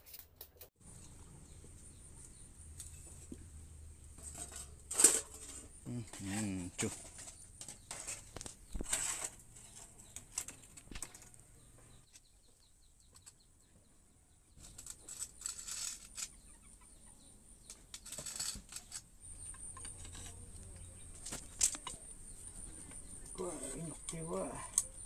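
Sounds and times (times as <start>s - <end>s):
metal rod scraping a steel pot: 4.2s - 10.6s.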